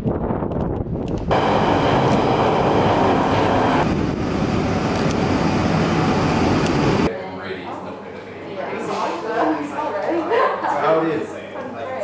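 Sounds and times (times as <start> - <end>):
train at a platform: 0.0 - 7.1
train rumbling through tunnel: 0.0 - 7.1.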